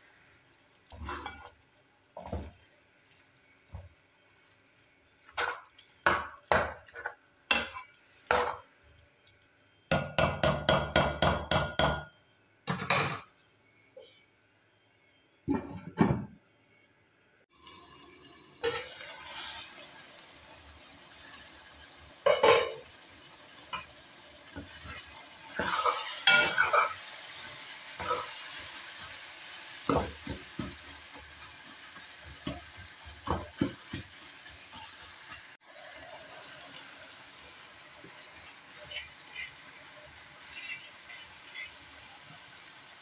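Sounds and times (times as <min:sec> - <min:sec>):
meat and tomatoes sizzling: 0:00.0 - 0:09.9, 0:17.5 - 0:43.0
spatula scraping a metal pot: 0:00.9 - 0:01.6, 0:38.8 - 0:39.8, 0:40.4 - 0:41.8.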